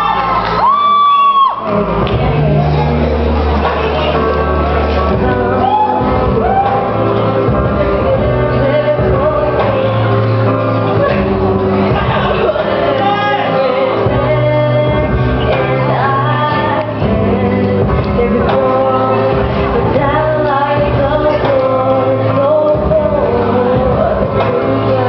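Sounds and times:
backing music with low bass: 0.0s - 25.0s
girl singing into a microphone: 5.1s - 10.3s, 12.3s - 25.0s.

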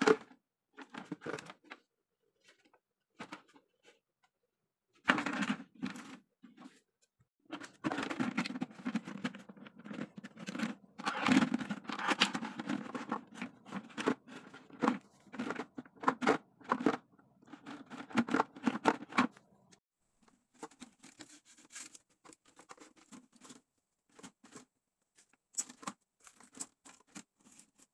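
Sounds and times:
thin plastic crinkling and clicking: 20.6s - 27.9s.

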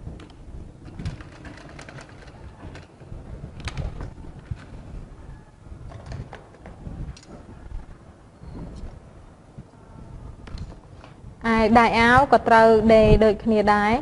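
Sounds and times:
sewing machine stitching: 0.9s - 3.0s.

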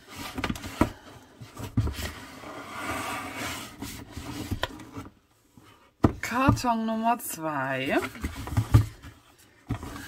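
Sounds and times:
cardboard rustling and scraping: 0.0s - 6.6s, 7.8s - 10.0s.

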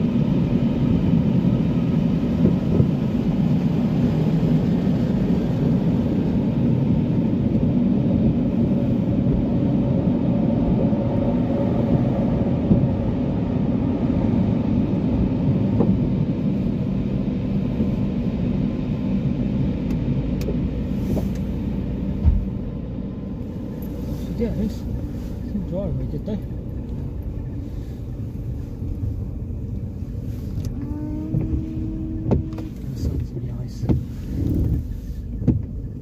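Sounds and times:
low mechanical rumble: 0.0s - 36.0s
short thump: 22.2s - 22.6s.

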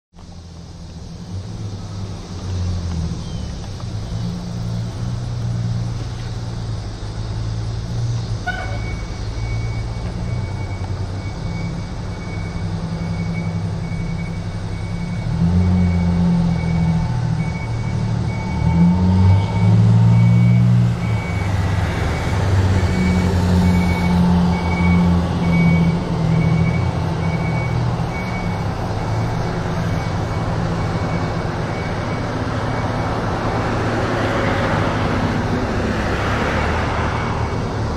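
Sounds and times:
diesel engine revving: 0.2s - 37.9s
backup alarm beeping: 8.5s - 33.3s.

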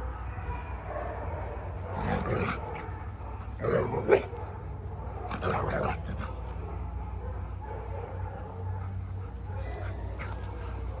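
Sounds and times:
dogs play growling: 1.8s - 4.4s, 5.2s - 6.6s, 8.6s - 11.0s.

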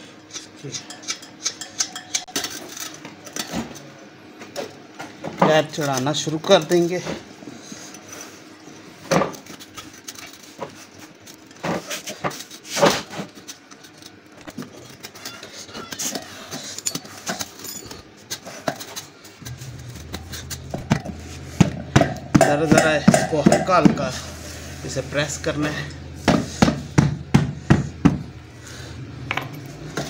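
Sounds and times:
low steady hum: 19.4s - 29.6s.

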